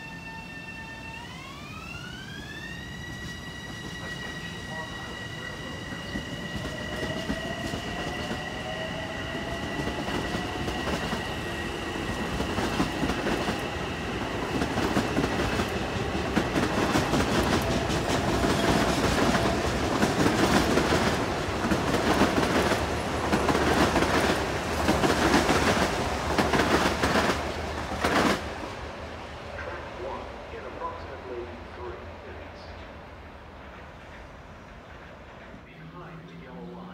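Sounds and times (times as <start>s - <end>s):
train motor whine: 0.0s - 24.0s
train wheels clattering: 9.3s - 28.4s.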